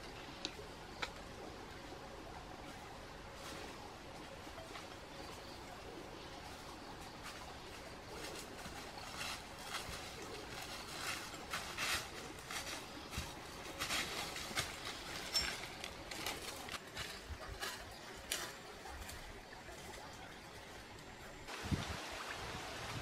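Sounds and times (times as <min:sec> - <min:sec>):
footsteps crunching through dry leaves: 0:06.4 - 0:20.8.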